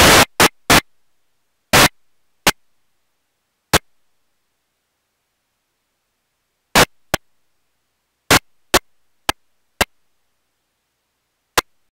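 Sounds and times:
sharp clicks or pops: 0.0s - 0.9s, 1.7s - 2.6s, 3.7s - 3.9s, 6.8s - 7.3s, 8.3s - 10.0s, 11.5s - 11.8s.

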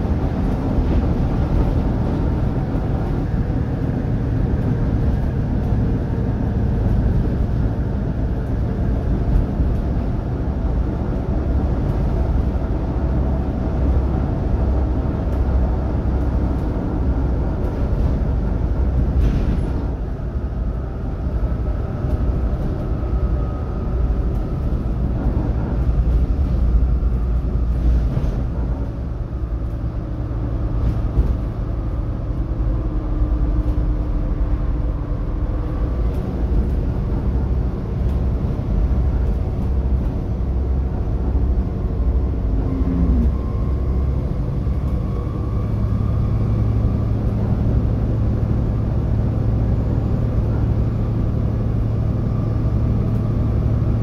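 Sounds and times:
diesel bus engine rumble: 0.0s - 54.0s
road and body noise: 0.0s - 54.0s
faint whine: 42.3s - 48.8s.

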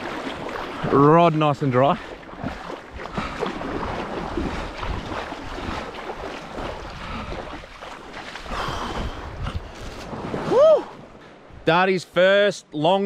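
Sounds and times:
water splashing and sloshing: 0.0s - 11.6s
wind buffeting microphone: 2.0s - 11.6s.

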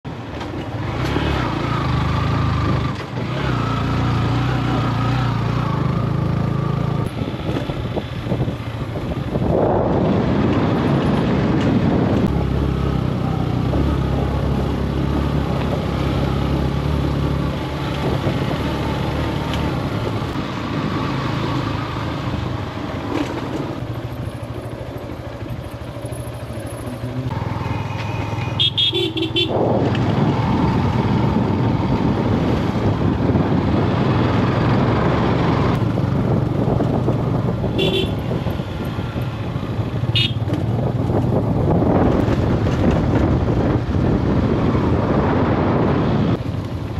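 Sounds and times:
motorcycle engine running: 0.1s - 46.9s
vehicle horn: 28.5s - 29.6s, 37.7s - 38.4s, 40.1s - 40.5s.

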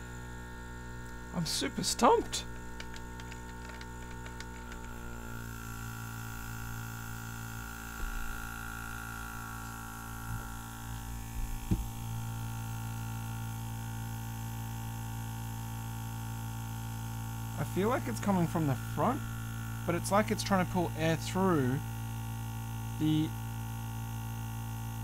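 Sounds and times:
air compressor humming: 0.0s - 25.0s
soft knocks on a box: 11.4s - 12.0s.

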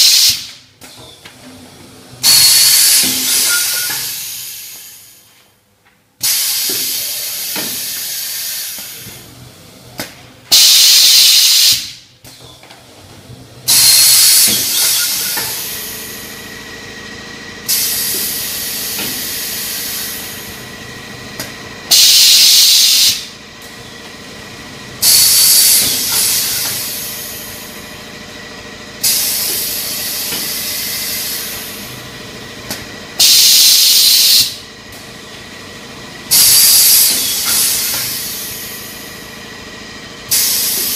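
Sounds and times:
pneumatic valves hissing: 0.0s - 0.5s, 2.2s - 5.3s, 6.2s - 9.3s, 10.5s - 12.0s, 13.7s - 16.4s, 17.6s - 20.6s, 21.9s - 23.3s, 25.0s - 27.7s, 29.0s - 32.0s, 33.2s - 34.6s, 36.3s - 39.2s, 40.3s - 40.9s
faint machine hum: 11.9s - 40.9s.

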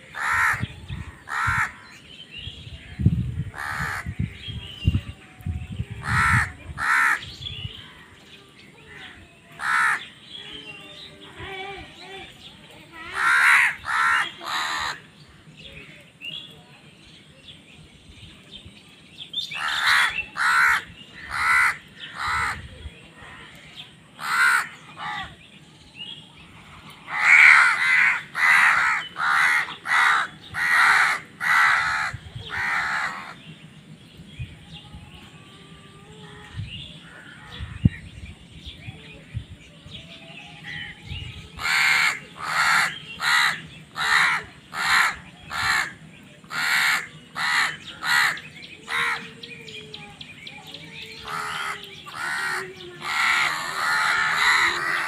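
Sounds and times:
crows cawing: 0.1s - 0.6s, 1.3s - 1.8s, 9.6s - 10.1s, 13.1s - 15.0s, 19.6s - 22.6s, 24.2s - 25.3s, 27.1s - 33.4s, 41.6s - 49.3s, 51.2s - 55.0s.

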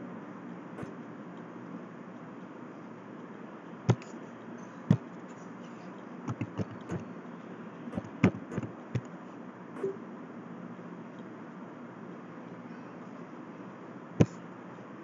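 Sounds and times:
computer mouse clicks: 3.9s - 4.1s, 6.3s - 7.0s, 8.0s - 9.1s
keyboard typing: 6.3s - 7.0s, 8.0s - 9.1s.

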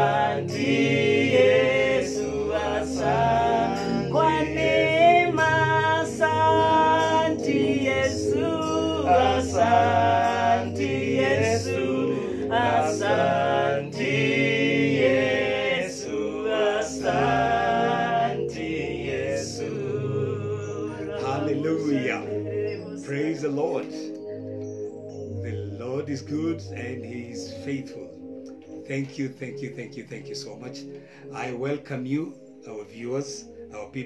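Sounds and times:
group singing gospel: 0.0s - 24.1s.

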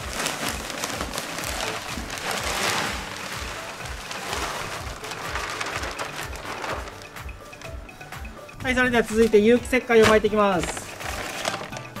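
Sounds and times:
compost pouring onto soil: 0.0s - 6.8s.

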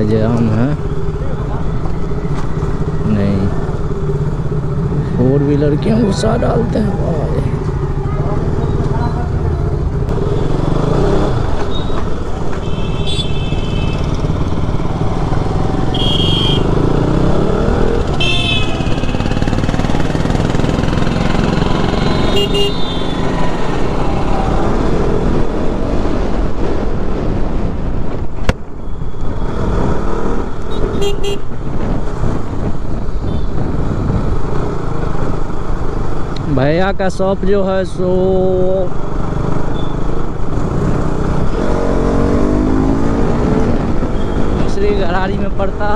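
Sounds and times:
road noise: 0.0s - 45.9s
motorcycle engine accelerating: 0.3s - 27.2s, 38.4s - 44.6s
car horn honks: 12.6s - 14.1s, 15.9s - 16.7s, 18.1s - 19.2s, 21.0s - 23.3s, 30.7s - 31.5s.

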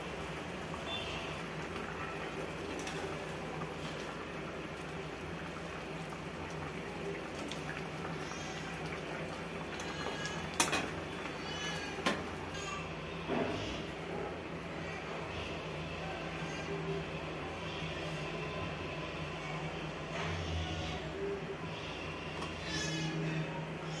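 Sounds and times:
curry simmering and bubbling: 0.0s - 16.4s.

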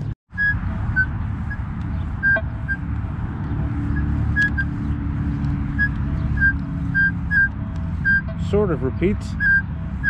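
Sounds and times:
steady low rumble: 0.0s - 10.0s
metal detector beeps: 0.4s - 2.9s, 3.9s - 4.8s, 5.7s - 8.4s, 9.3s - 9.7s.

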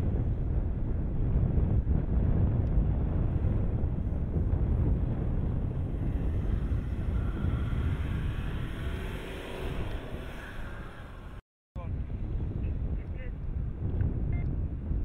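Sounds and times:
low wind rumble on microphone: 0.0s - 15.0s
vehicle driving across sand: 0.2s - 11.4s.

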